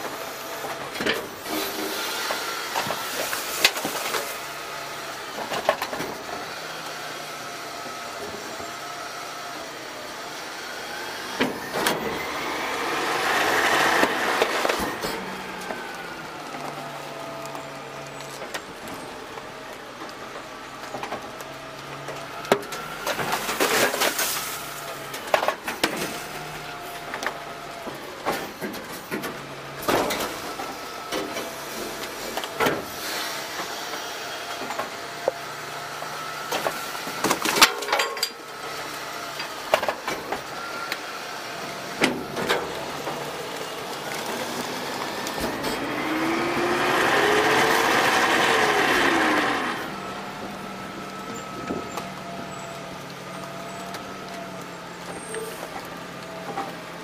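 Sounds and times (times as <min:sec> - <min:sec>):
hydraulic whine: 0:00.0 - 0:19.4, 0:21.8 - 0:56.7
truck engine revving: 0:10.5 - 0:20.8, 0:38.5 - 0:57.0
knocks and clangs of metal: 0:37.2 - 0:38.4.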